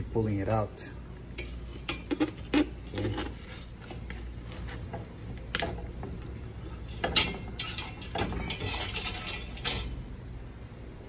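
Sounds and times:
steaming rack rattling: 5.0s - 10.2s
metal tongs clinking on pot: 6.9s - 10.0s.

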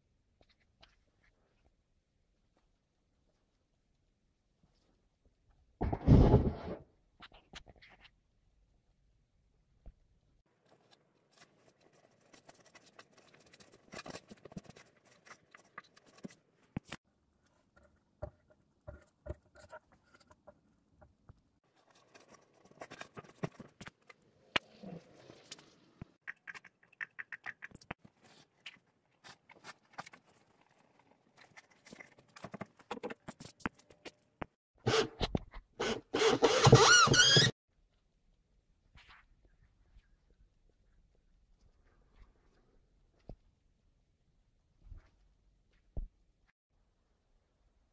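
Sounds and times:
hands and tools tapping and scraping: 10.6s - 24.7s.

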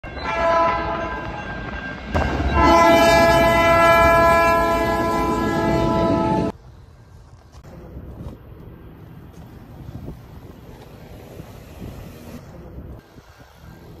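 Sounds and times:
train horn blasts: 0.2s - 1.2s, 2.4s - 6.5s.

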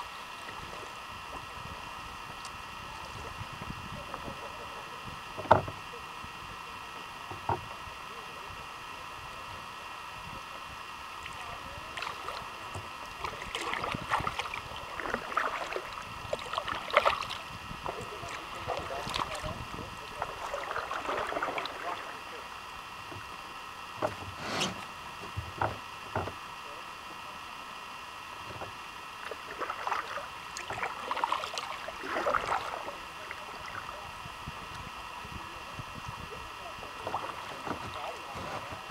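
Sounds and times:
steady background hiss: 0.0s - 38.9s
water dripping and lapping: 11.2s - 22.2s, 29.2s - 32.9s
paddle strokes splashing: 11.2s - 22.5s, 29.2s - 34.0s, 36.6s - 38.9s.

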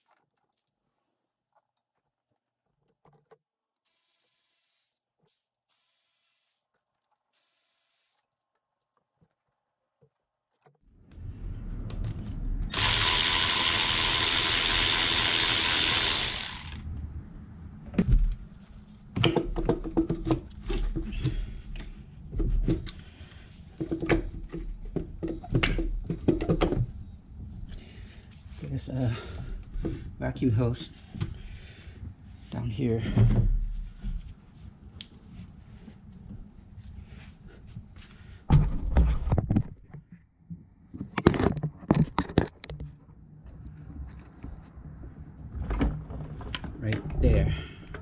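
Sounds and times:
tools clicking and knocking: 1.5s - 3.5s
cordless electric ratchet running: 3.9s - 6.6s, 7.3s - 8.2s, 12.7s - 16.8s.

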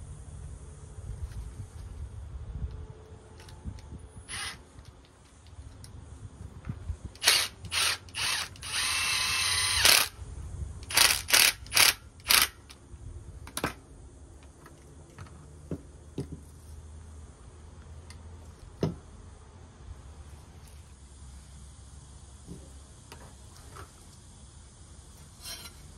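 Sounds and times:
cordless drill whining: 4.3s - 4.6s, 7.2s - 10.2s, 10.8s - 12.6s.

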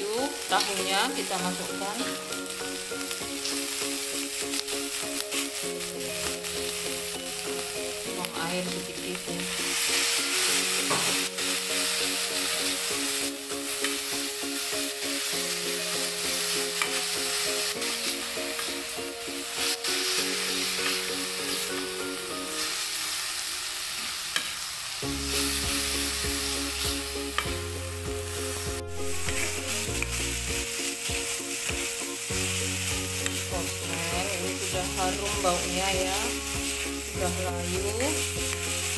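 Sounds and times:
food sizzling in a metal pan: 0.0s - 38.9s
background music with bass: 25.0s - 38.9s.

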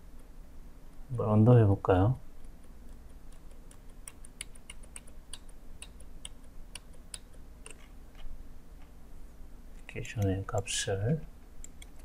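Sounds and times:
low steady hum: 0.0s - 12.0s
mouse and keyboard clicking: 2.4s - 8.3s, 11.6s - 12.0s.

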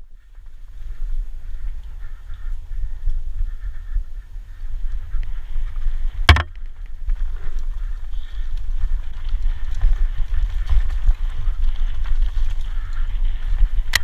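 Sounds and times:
wind rumble on microphone: 0.0s - 14.0s
mountain bike rattling over rocks: 5.4s - 14.0s
sharp knock: 6.3s - 6.5s.

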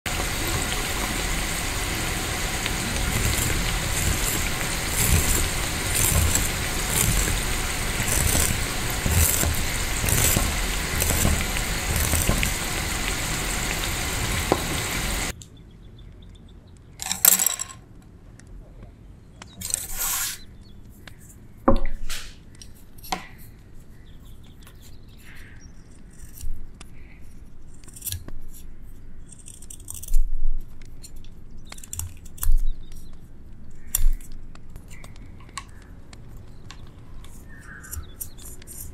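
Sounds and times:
food deep-frying in oil: 0.1s - 15.3s
skewers swishing: 2.9s - 15.3s.

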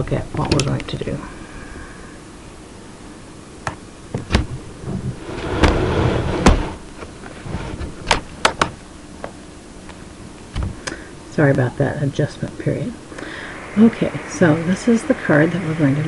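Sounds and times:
scraping rustle: 4.8s - 8.0s.

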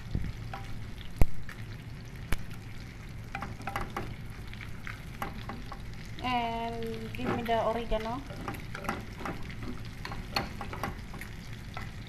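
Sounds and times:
roux sizzling in a pan: 0.0s - 12.0s
spatula stirring and scraping: 7.1s - 12.0s.

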